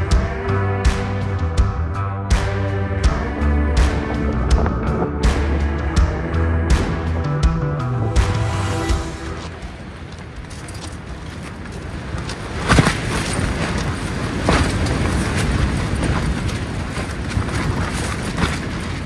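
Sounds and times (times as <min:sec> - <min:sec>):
music: 0:00.0 - 0:09.6
wind buffeting tent fabric: 0:08.2 - 0:19.0
tent fabric flapping: 0:09.4 - 0:19.0.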